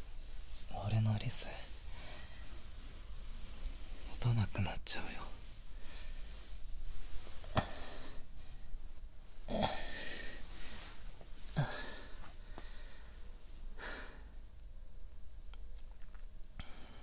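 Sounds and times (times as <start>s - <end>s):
man breathing: 1.7s - 4.1s, 5.4s - 14.5s, 16.6s - 17.0s.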